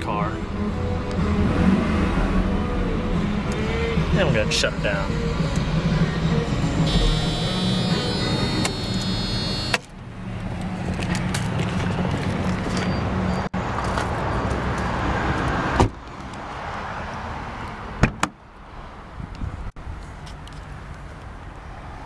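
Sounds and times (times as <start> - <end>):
car radio music: 3.5 - 9.8
car door shutting: 6.9 - 9.9.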